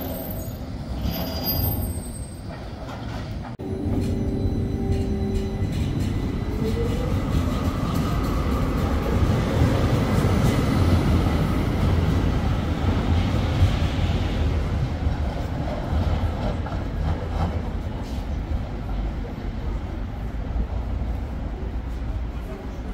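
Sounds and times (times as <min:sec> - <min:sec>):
tram rumbling on rails: 0:00.0 - 0:22.9.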